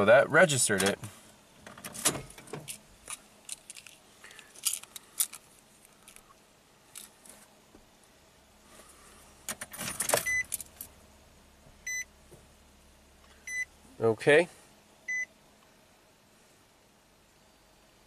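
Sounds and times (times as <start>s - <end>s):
keys jingling and clicking: 2.6s - 6.2s.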